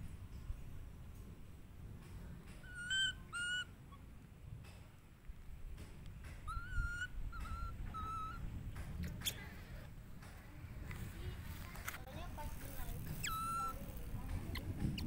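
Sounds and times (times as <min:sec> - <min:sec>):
baby monkey squeaky cooing: 0:02.6 - 0:04.0, 0:06.4 - 0:08.4, 0:13.1 - 0:15.0.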